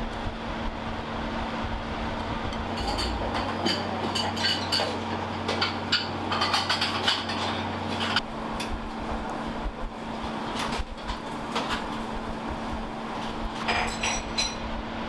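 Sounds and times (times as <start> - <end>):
lower hum: 0.0 - 4.0, 8.0 - 13.6
steady machine hum: 0.0 - 15.0
utensils and dishes clinking: 2.7 - 8.2, 13.6 - 14.7.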